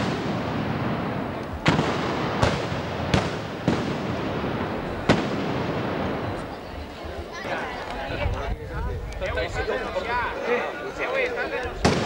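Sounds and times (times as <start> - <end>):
black-powder gunshots: 0.0 - 6.5
background noise: 0.0 - 12.0.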